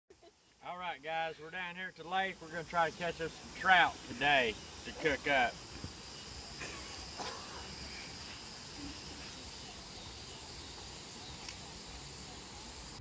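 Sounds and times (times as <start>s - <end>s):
faint hiss: 0.1s - 13.0s
insects chirring: 0.1s - 13.0s.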